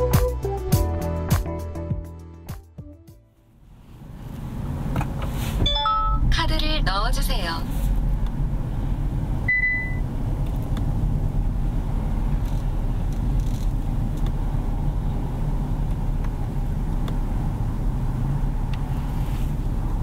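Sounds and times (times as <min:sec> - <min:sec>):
engine and road rumble: 0:00.0 - 0:20.0
short high beep: 0:05.6 - 0:06.3, 0:09.5 - 0:10.0.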